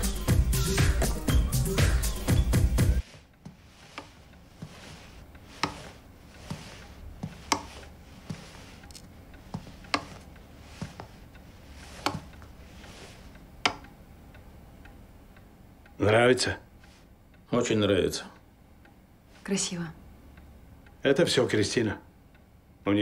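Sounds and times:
footsteps on hard floor: 2.8s - 13.2s
cane tapping on hard floor: 5.6s - 11.1s, 12.0s - 12.5s.

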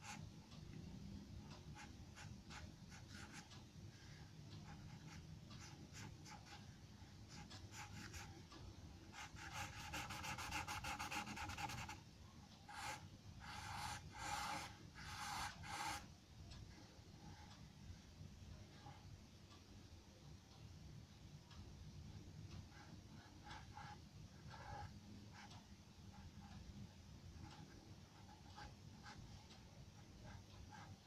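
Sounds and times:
charcoal pencil scratching on paper: 7.3s - 8.3s, 9.1s - 12.0s, 12.7s - 16.1s.

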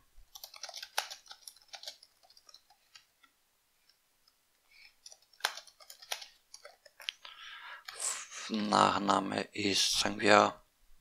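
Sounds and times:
computer keyboard typing: 0.3s - 3.1s, 4.8s - 7.1s.

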